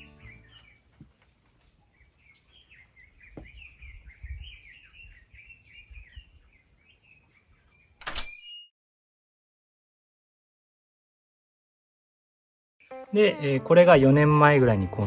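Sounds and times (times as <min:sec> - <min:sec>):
songbird warbling: 0:00.0 - 0:00.9.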